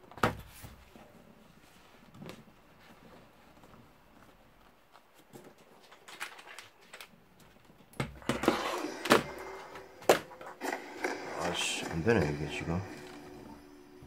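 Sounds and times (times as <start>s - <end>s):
keyboard scraping across desk: 8.3s - 13.7s.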